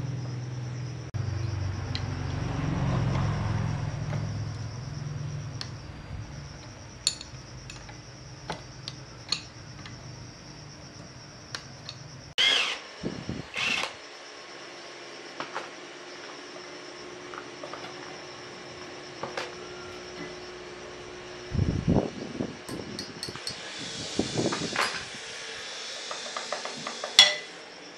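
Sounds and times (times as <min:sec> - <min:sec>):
metallic clinks of tools: 0:07.0 - 0:08.0
machine motor humming: 0:13.6 - 0:14.0.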